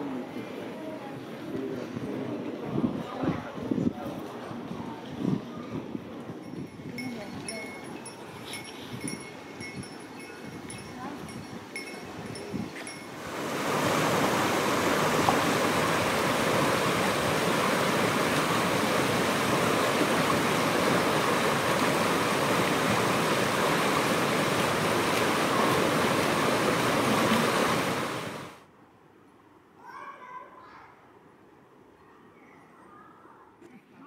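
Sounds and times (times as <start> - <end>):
stream rushing over rocks: 13.1 - 28.6.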